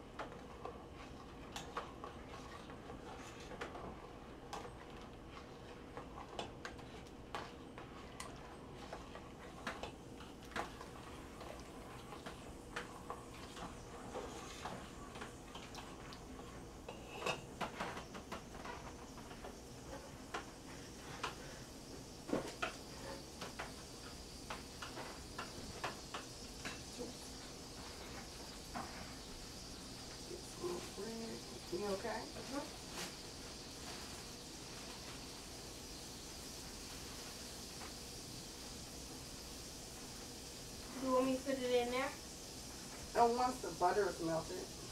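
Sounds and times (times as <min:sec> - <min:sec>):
utensils and dishes clinking: 0:16.9 - 0:19.4.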